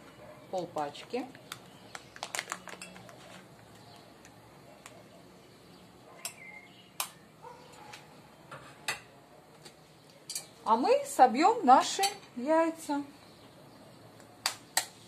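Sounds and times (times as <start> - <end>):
foil wrapper rustling: 1.3 - 3.8.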